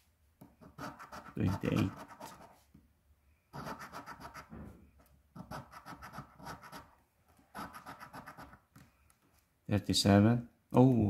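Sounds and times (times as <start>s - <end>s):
coin scraping scratch card: 0.6s - 2.5s, 3.6s - 4.5s, 5.4s - 6.9s, 7.6s - 8.6s.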